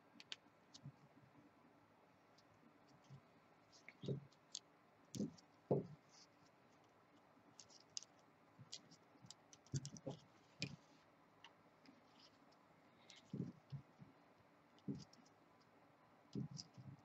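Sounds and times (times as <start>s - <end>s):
small clicks and scratches: 0.1s - 1.1s, 2.3s - 17.0s
dull knocks: 5.2s - 5.9s.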